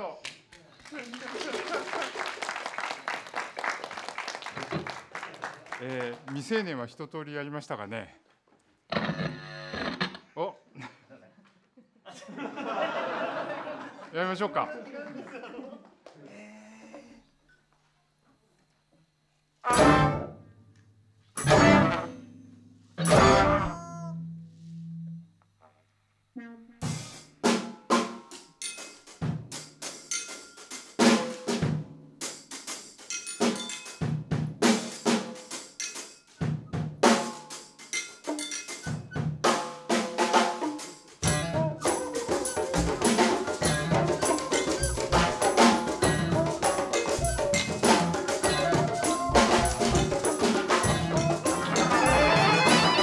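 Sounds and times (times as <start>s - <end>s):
sharp percussive hits: 21.4s - 23.7s, 39.5s - 53.0s.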